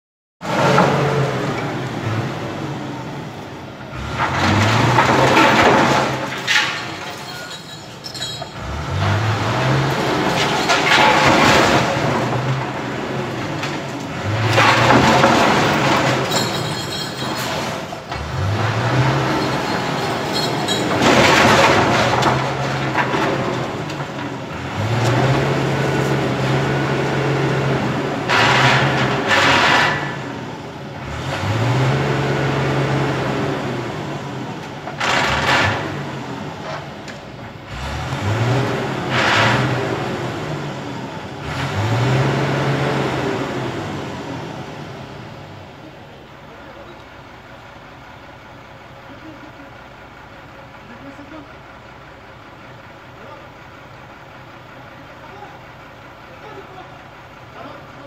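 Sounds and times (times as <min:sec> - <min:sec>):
truck engine revving hard: 0:00.4 - 0:07.0, 0:08.5 - 0:45.6.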